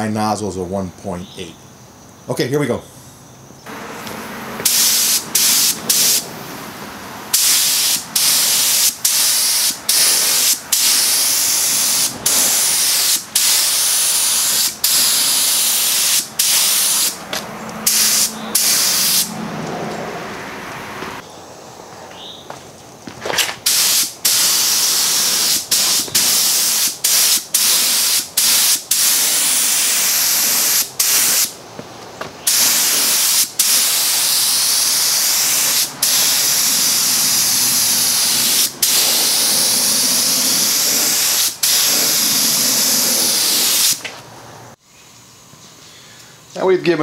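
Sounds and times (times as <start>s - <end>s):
spray gun hissing: 3.7s - 19.3s, 23.6s - 31.6s, 32.4s - 44.0s.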